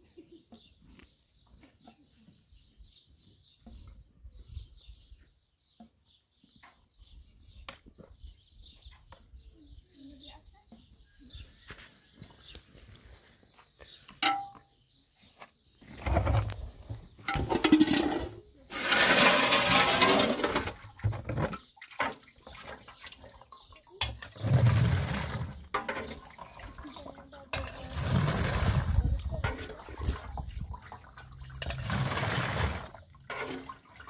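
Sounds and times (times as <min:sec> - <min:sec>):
liquid pouring and sloshing: 0:17.3 - 0:34.0.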